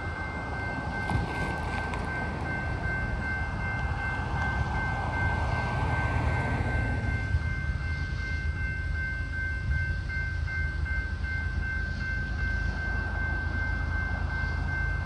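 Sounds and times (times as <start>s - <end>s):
crossing bell ringing: 0.0s - 15.0s
freight train rumble: 0.0s - 15.0s.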